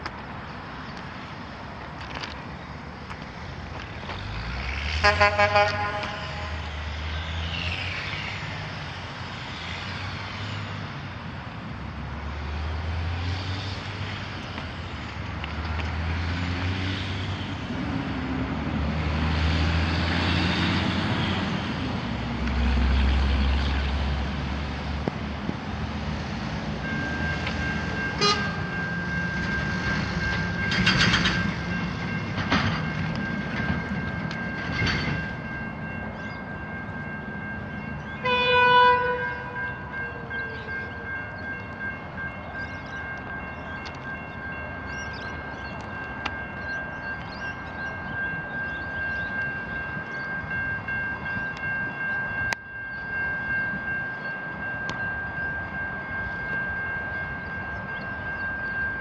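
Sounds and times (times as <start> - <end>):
heavy trucks passing: 0.0 - 59.0
level crossing warning bell: 26.0 - 59.0.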